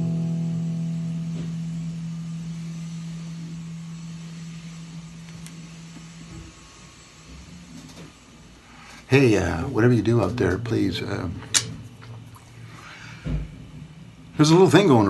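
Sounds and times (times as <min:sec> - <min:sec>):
acoustic guitar chord ringing: 0:00.0 - 0:05.9.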